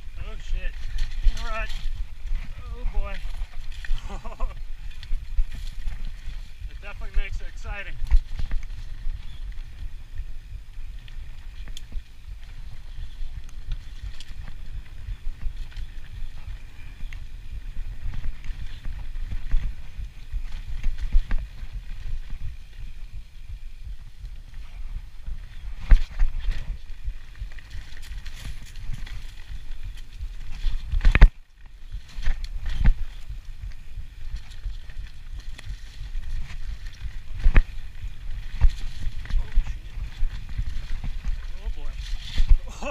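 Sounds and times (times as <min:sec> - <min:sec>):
tyres rumbling over dirt: 0:00.0 - 0:10.0.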